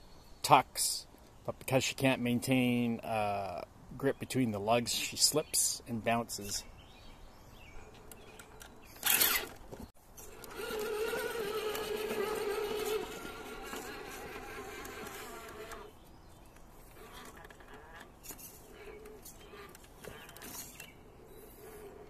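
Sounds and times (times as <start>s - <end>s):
electric motor whining: 9.0s - 9.6s, 10.2s - 16.0s.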